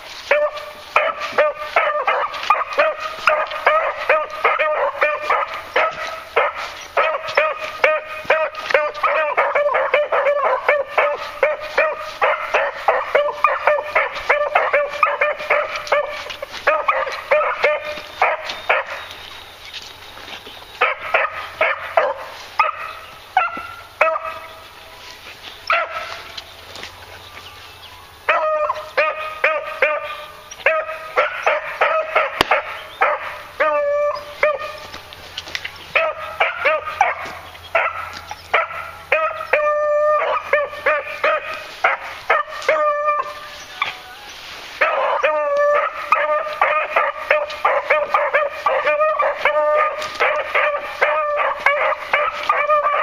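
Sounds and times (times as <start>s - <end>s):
beagles baying: 0.0s - 53.0s.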